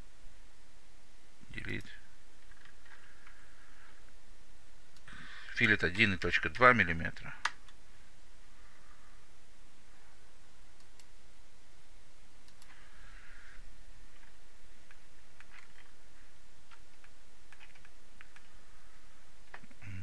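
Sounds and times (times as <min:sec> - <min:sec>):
low hum and hiss: 0:00.0 - 0:20.0
computer mouse clicks: 0:12.4 - 0:12.9, 0:16.7 - 0:18.5.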